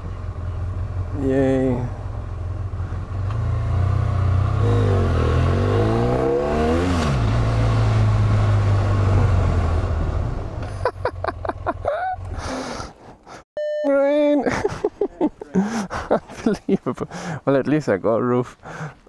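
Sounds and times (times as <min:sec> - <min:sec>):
motorcycle engine running: 0:00.0 - 0:05.9.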